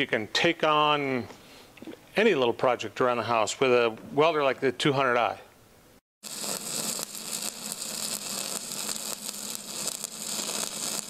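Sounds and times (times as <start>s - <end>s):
electric arc crackling and hissing: 6.2s - 11.0s.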